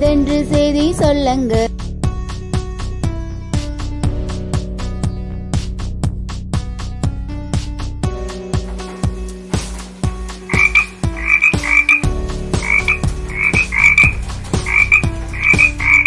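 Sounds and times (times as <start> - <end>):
instrumental music with steady beat: 0.0 - 16.0
frog croaking: 10.3 - 16.0.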